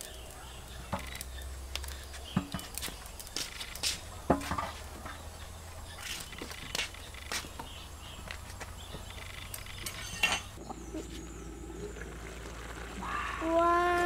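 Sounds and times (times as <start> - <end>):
monkey scrabbling on clay pot: 0.8 - 11.2.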